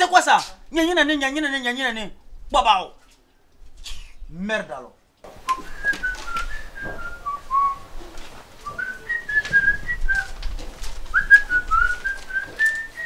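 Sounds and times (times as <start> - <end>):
person whistling a tune: 5.5 - 7.8, 8.7 - 10.3, 11.2 - 13.0.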